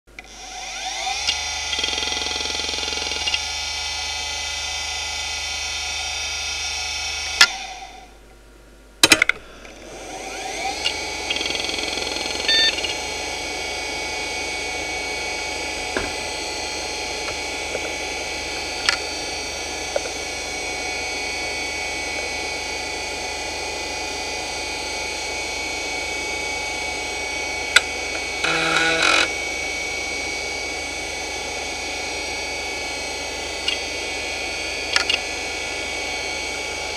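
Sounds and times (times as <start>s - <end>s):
hard drive whining: 0.1s - 36.9s
hard drive head-seek clicks: 10.8s - 13.0s, 17.2s - 19.1s.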